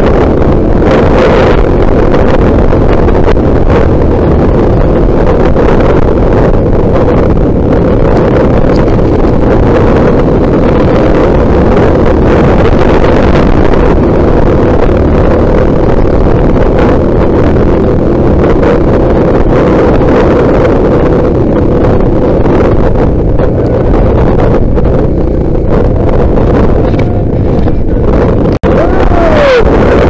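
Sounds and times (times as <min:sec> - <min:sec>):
motorcycle engine running: 0:00.0 - 0:30.0
wind buffeting microphone: 0:00.0 - 0:30.0.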